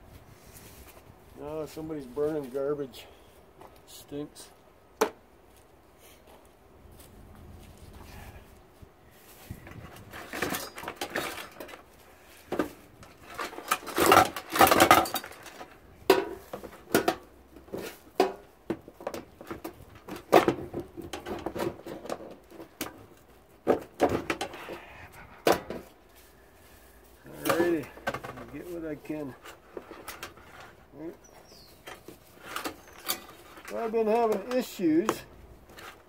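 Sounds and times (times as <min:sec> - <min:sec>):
hand tool clanking on metal parts: 0:09.7 - 0:11.9, 0:12.5 - 0:24.8, 0:27.2 - 0:30.8, 0:31.8 - 0:36.0.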